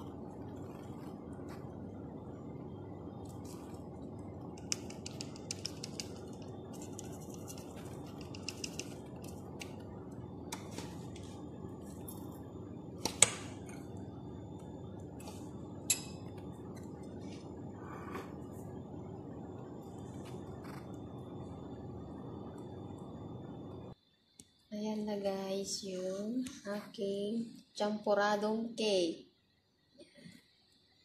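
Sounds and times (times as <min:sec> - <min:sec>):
steady low hum: 0:00.0 - 0:28.4
metal kitchenware clinking on dishes: 0:15.9 - 0:16.3.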